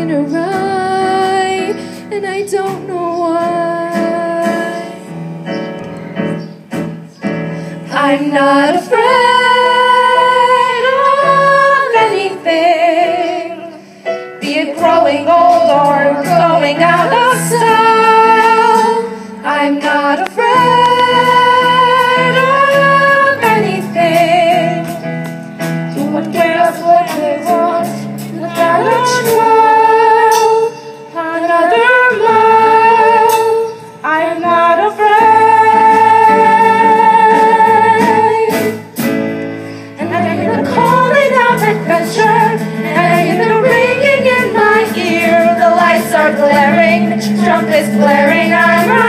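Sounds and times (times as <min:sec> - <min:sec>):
instrumental accompaniment: 0:00.0 - 0:49.0
women singing long held notes: 0:07.8 - 0:25.0, 0:26.0 - 0:38.8, 0:40.0 - 0:49.0.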